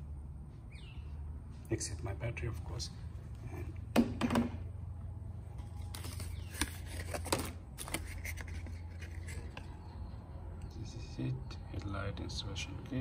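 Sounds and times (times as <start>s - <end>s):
steady low hum: 0.0s - 13.0s
paper leaflet rustling and crackling: 5.6s - 9.6s.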